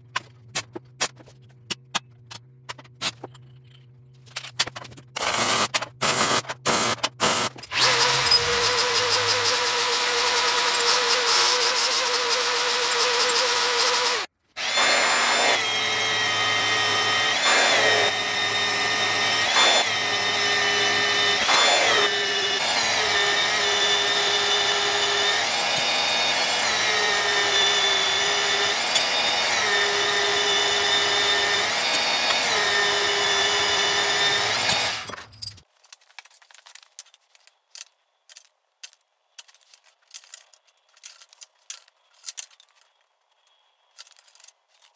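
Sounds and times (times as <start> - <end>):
angle grinder grinding steel: 7.3 - 35.3.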